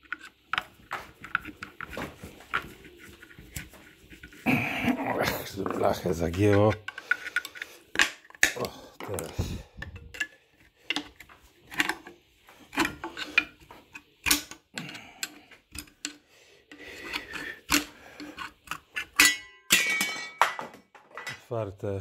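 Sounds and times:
screwdriver scraping metal: 12.7 - 19.3.

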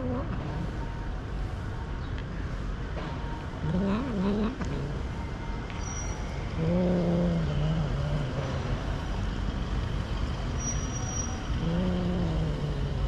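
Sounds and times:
street traffic rumbling: 0.0 - 13.0
low engine drone: 2.5 - 10.6.

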